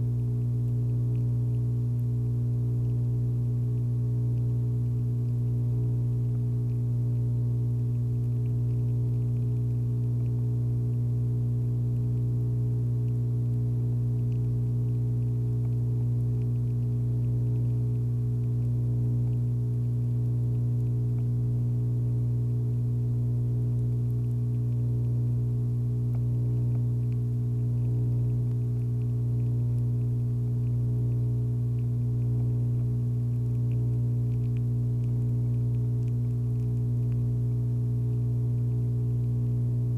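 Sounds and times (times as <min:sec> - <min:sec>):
steady low hum: 0:00.0 - 0:39.9.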